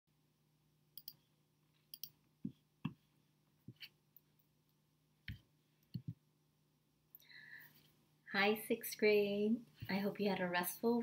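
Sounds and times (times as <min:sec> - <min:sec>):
faint steady hum: 0:00.1 - 0:11.0
computer mouse clicks: 0:01.0 - 0:01.2, 0:01.9 - 0:02.2.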